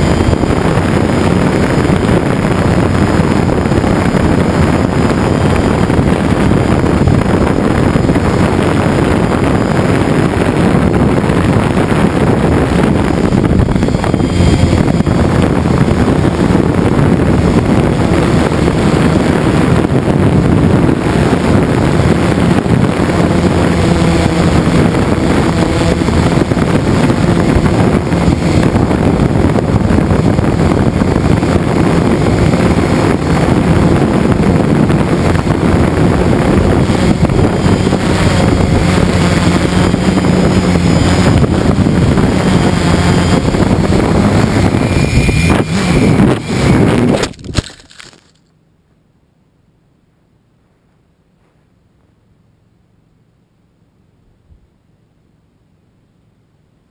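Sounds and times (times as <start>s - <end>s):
drone motors and propellers: 0.0s - 48.4s
wind noise on microphone: 0.0s - 48.4s.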